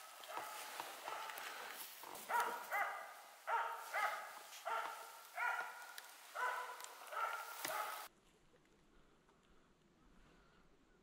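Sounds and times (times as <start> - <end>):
dog barking: 0.0 - 1.6, 2.2 - 8.1.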